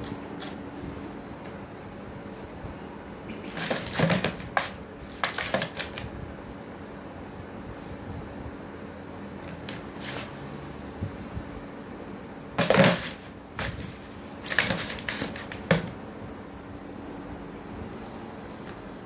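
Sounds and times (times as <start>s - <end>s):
plastic tray scraping on tiled floor: 3.5s - 6.0s, 12.6s - 16.0s.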